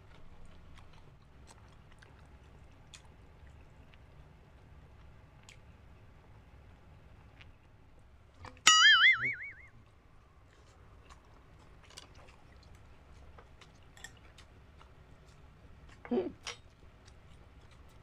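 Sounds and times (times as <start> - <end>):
chewing and mouth clicks: 0.0 - 5.8, 10.4 - 18.0
wobbling twang: 8.7 - 9.7.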